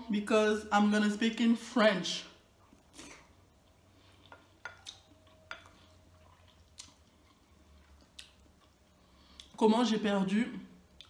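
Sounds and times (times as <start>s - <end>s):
person chewing food: 2.6s - 9.6s.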